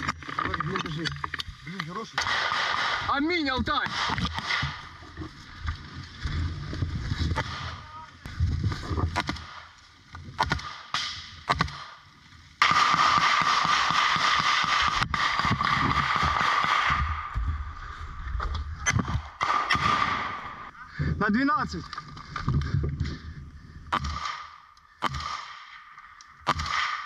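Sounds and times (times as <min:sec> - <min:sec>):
sharp gunshots: 0:02.1 - 0:04.9, 0:12.6 - 0:17.4, 0:18.8 - 0:20.7, 0:23.9 - 0:27.0
low rumble: 0:16.9 - 0:21.2.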